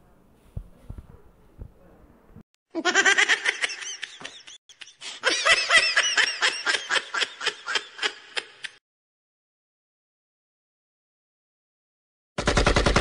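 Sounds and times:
high pulsing laughter: 2.8 - 8.8.

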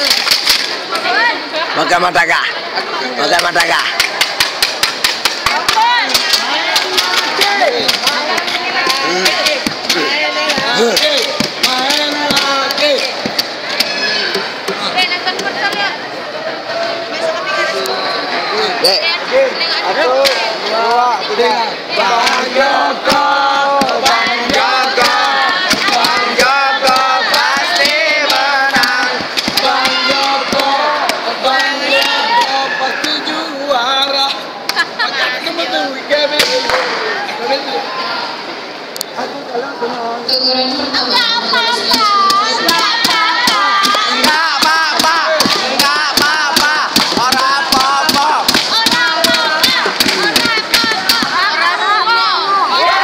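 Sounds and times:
crowd shouting and cheering: 0.0 - 53.0
sharp claps: 3.4 - 14.0, 23.0 - 32.6, 41.9 - 51.4.

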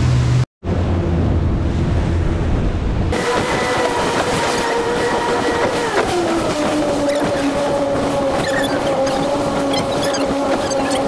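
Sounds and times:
heavy low rumble: 0.0 - 3.2
rushing wind and water: 0.7 - 11.0
outboard motors whining: 3.1 - 11.0.

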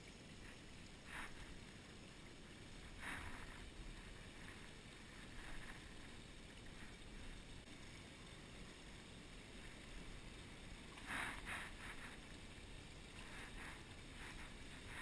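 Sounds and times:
light hiss: 0.0 - 15.0
low outdoor rumble: 0.0 - 15.0.

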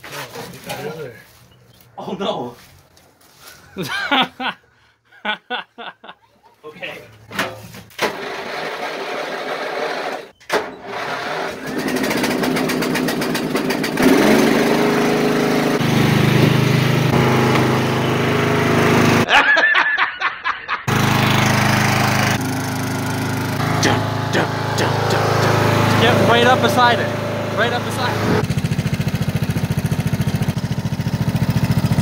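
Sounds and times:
riding mower engine running: 8.0 - 19.3, 20.9 - 32.0.

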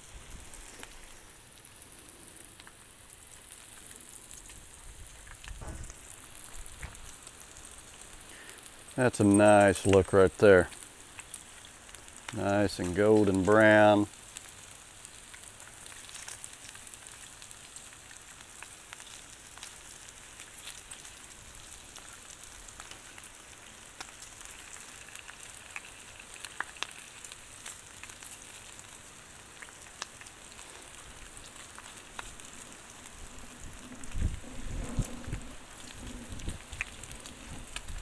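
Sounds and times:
food sizzling on griddle: 0.0 - 38.0
low bumps: 5.4 - 7.1.

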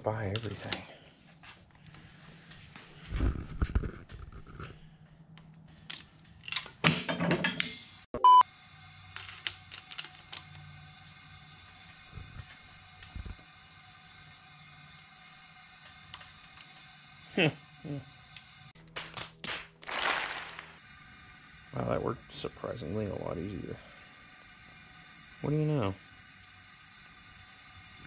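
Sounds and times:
short loud high beep: 8.2 - 8.4.

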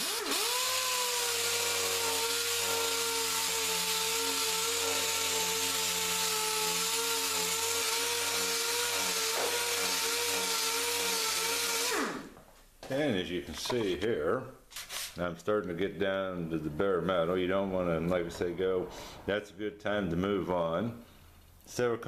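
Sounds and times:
air sander whining and hissing: 0.0 - 12.4.

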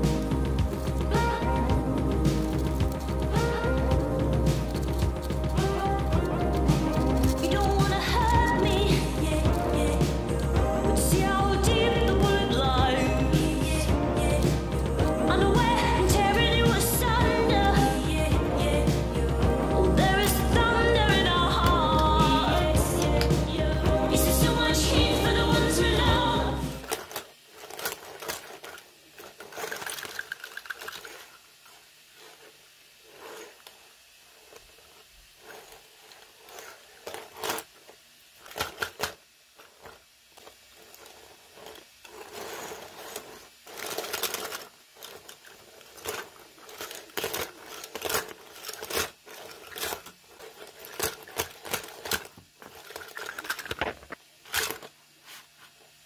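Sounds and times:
plastic joints clicking: 2.5 - 9.6, 26.8 - 31.4, 41.0 - 55.0
soft rubbing: 30.8 - 37.9, 54.8 - 56.0.

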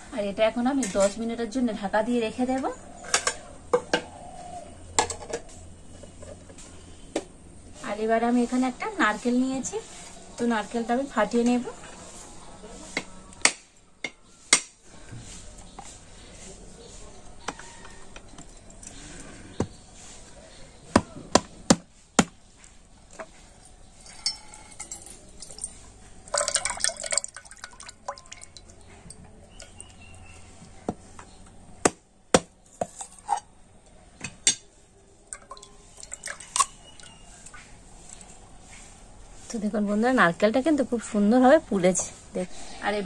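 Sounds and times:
drips: 23.5 - 30.5, 35.2 - 38.3
coconut water splashing into mug: 25.0 - 29.8, 35.3 - 37.2.

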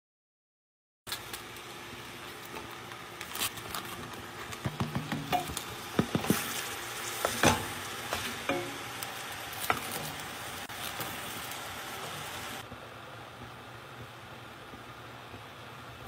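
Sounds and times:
meat sizzling in a pot: 1.1 - 12.7.

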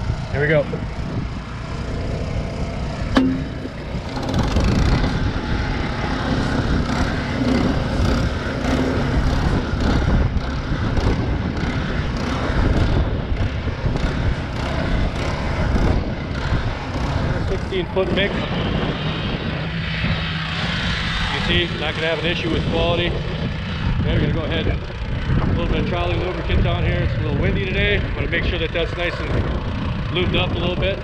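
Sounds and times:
small gasoline engine running: 0.0 - 27.0
wind noise on microphone: 0.0 - 31.0
sharp clack: 3.1 - 4.3.

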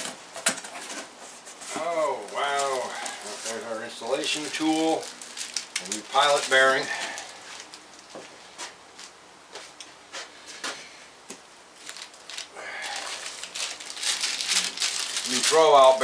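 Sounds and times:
packing peanuts rustling and squeaking: 0.0 - 8.2, 11.8 - 16.0.

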